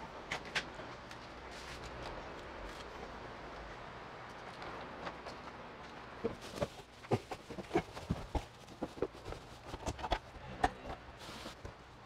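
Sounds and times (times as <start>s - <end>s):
rustling: 6.2s - 11.9s.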